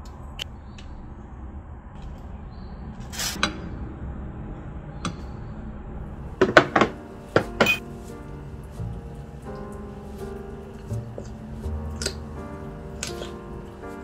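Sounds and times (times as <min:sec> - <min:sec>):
quiet background music: 0:03.4 - 0:14.0
noodle slurping: 0:08.1 - 0:14.0.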